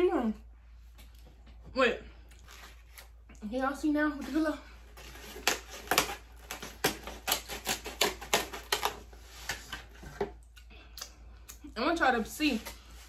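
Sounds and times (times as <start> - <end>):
styrofoam containers squeaking: 4.2 - 9.9.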